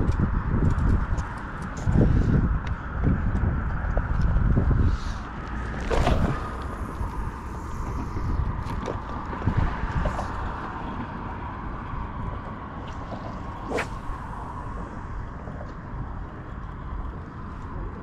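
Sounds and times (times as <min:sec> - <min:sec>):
wind on microphone: 0:00.0 - 0:18.0
fishing rod swishing: 0:12.8 - 0:14.6.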